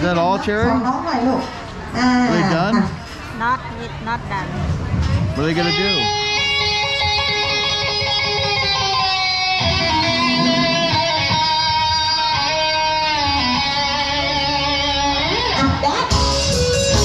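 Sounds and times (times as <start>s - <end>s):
guitar music with held chords: 5.6s - 17.0s.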